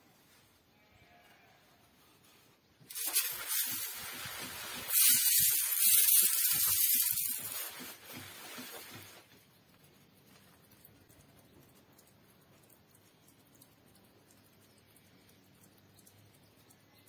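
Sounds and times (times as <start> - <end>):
spray nozzle hissing: 2.9 - 9.2.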